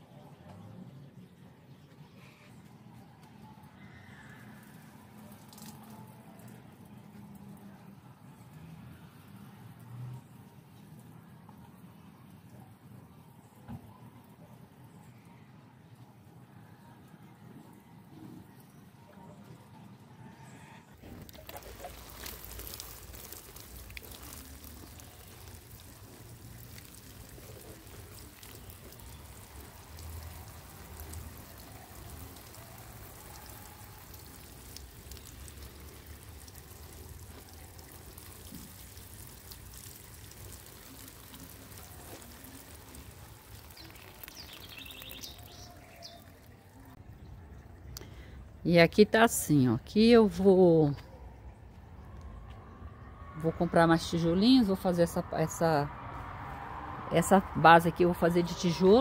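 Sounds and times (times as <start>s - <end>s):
water sprinkling onto leaves: 4.2s - 11.3s, 21.1s - 47.0s, 56.5s - 59.0s.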